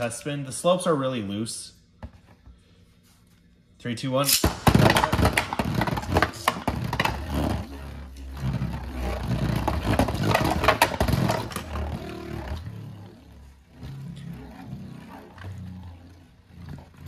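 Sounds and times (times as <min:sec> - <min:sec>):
spinning top scraping in stadium: 0:04.9 - 0:17.0.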